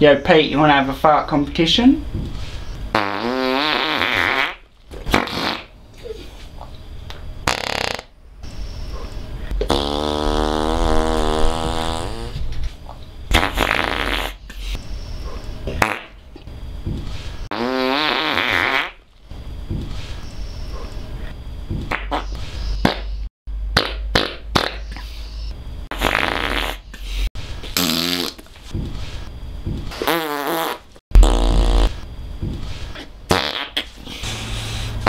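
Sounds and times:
buzzing fart sounds: 2.9 - 5.8, 7.4 - 8.1, 9.6 - 12.6, 13.3 - 14.4, 15.7 - 16.2, 17.5 - 19.0, 21.9 - 23.1, 23.7 - 25.0, 25.8 - 28.4, 29.9 - 32.1, 33.3 - 35.0.

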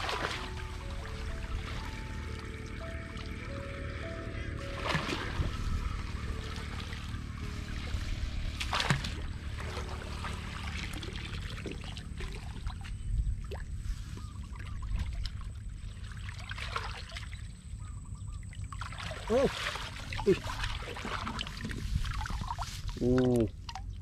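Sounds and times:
water splash: 0.0 - 3.4, 4.6 - 13.8, 14.6 - 17.5, 18.6 - 23.9
low steady rumble: 0.0 - 24.0
muddy water sloshing and trickling: 0.0 - 24.0.

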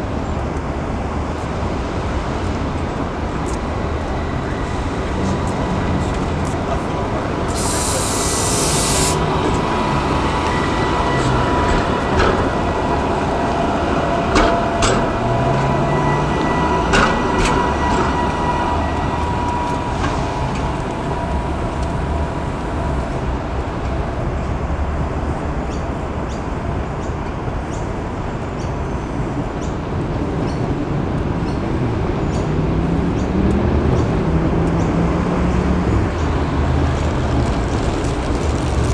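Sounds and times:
tram electric motor whine: 0.2 - 26.6.

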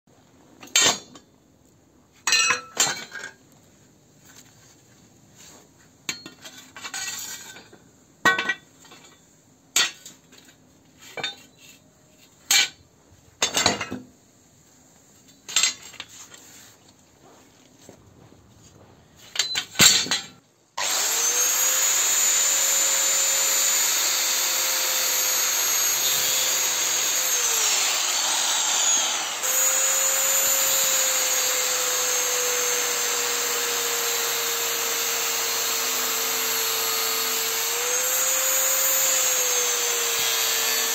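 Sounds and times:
angle grinder whining: 20.8 - 40.9.

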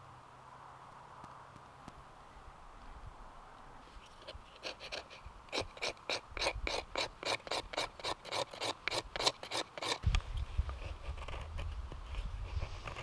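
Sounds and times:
blade rasping on wood: 4.6 - 10.1.

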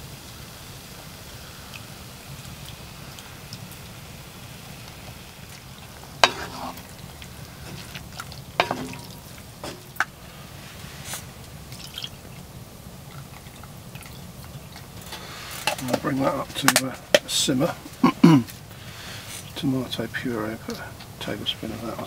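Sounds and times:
stirring with wooden spatula: 2.3 - 19.6
spatula knocking against pot: 8.6 - 9.8.

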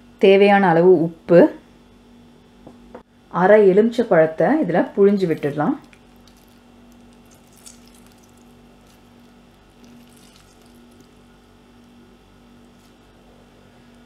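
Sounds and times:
low hum: 4.6 - 14.0
lemon squeezed by hand: 5.8 - 11.9.

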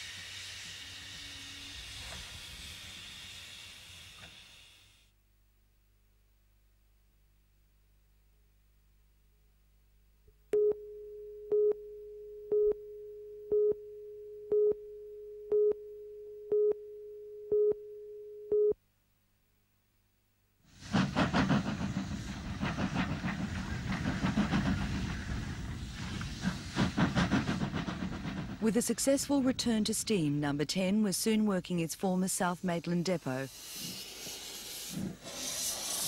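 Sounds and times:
steam locomotive working: 0.0 - 5.0, 20.7 - 36.0.

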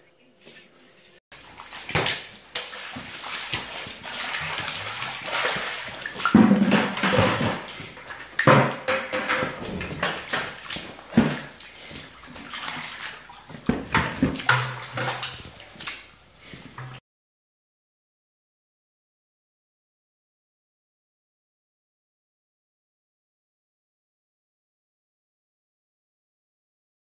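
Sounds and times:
water splashing and sloshing: 1.3 - 17.0.

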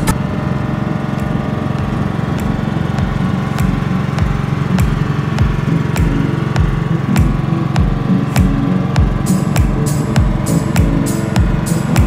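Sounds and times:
small boat engine running: 0.0 - 12.0
music with drum beat: 1.8 - 12.0.

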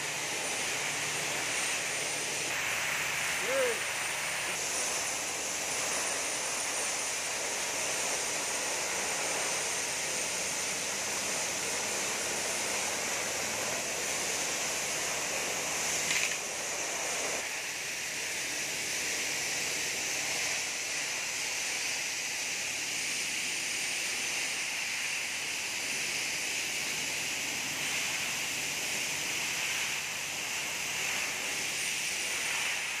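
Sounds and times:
steady hiss: 0.0 - 33.0.

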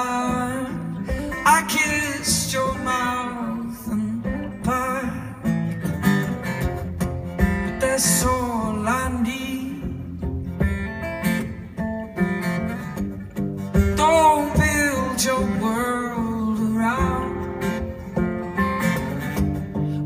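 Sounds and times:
man singing: 0.0 - 5.8, 7.5 - 10.2, 13.8 - 18.0
acoustic guitar strumming: 0.0 - 20.0.

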